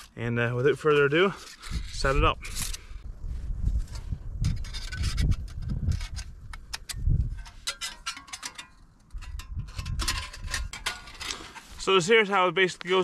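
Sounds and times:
metal panels clicking and clinking: 4.6s - 11.6s.

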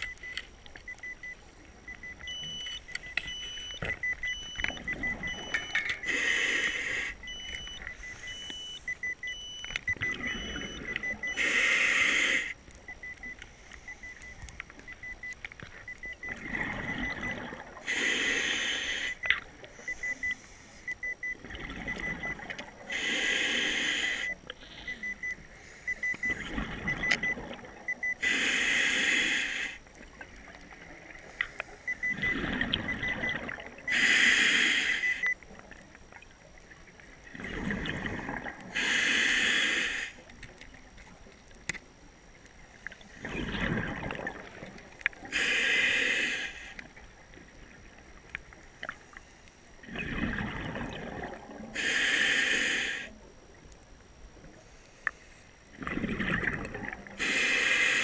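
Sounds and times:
higher electronic beeps: 0.0s - 17.5s
rapid electronic beeps: 0.0s - 17.6s, 18.4s - 22.4s, 23.0s - 29.5s, 31.9s - 35.4s
regulator inhale hiss: 6.0s - 7.2s, 11.4s - 12.6s, 17.8s - 20.9s, 22.9s - 26.3s, 28.2s - 29.8s, 33.9s - 35.2s, 38.7s - 40.2s, 45.2s - 46.9s, 51.8s - 53.2s, 57.2s - 58.0s.

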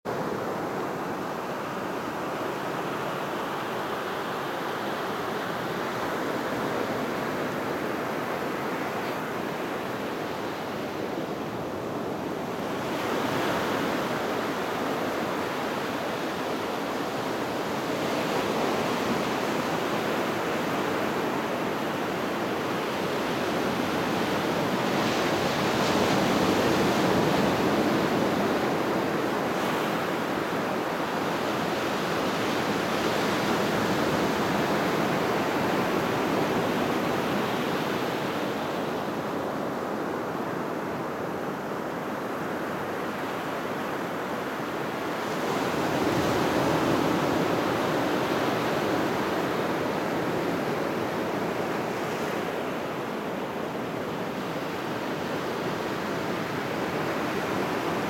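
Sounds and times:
surf washing up beach: 0.1s - 58.0s.

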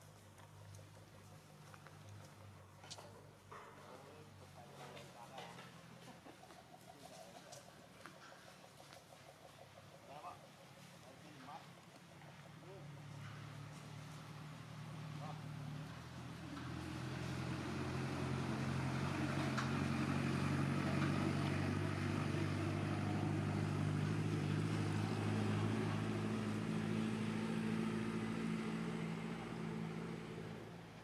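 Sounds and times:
engine running with low hum: 0.0s - 31.0s.

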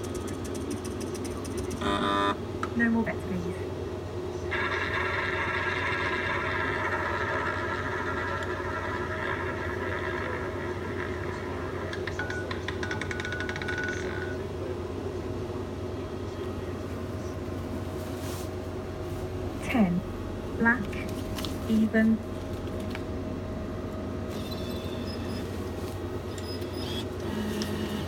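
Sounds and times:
roulette wheel whirring: 4.5s - 14.3s.

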